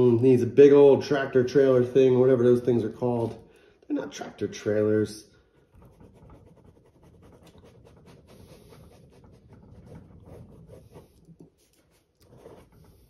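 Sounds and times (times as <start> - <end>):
pen scratching on paper: 5.6 - 13.0.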